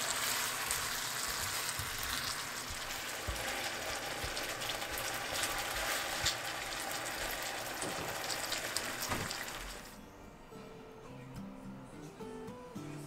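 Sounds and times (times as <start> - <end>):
sauce sizzling in a frying pan: 0.0 - 10.0.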